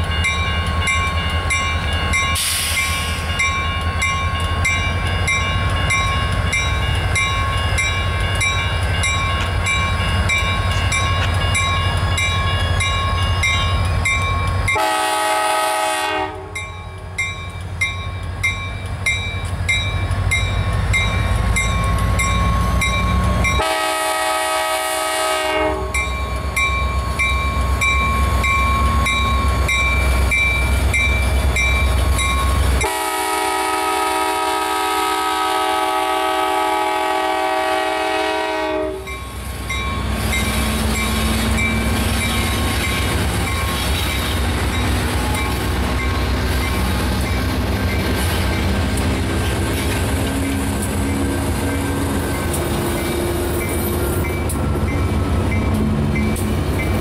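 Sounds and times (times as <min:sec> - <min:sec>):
diesel locomotive engine rumbling: 0:00.0 - 0:57.0
locomotive bell ringing: 0:00.0 - 0:57.0
train horn blasts: 0:14.8 - 0:16.6, 0:23.6 - 0:26.0, 0:32.8 - 0:39.2.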